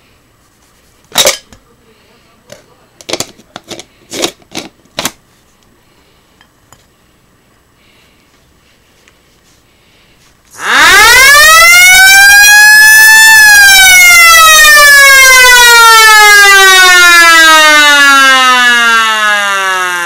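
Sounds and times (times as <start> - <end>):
electric motor siren wailing: 10.6 - 20.0.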